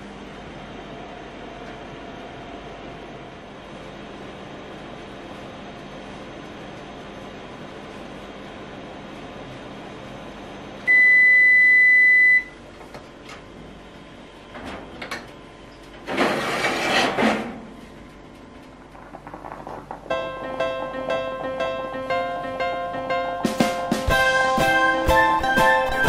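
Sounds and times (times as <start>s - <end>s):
electric oven humming: 0.0s - 26.0s
oven timer long beep: 10.8s - 12.6s
metal baking tray scraping out: 16.1s - 17.7s.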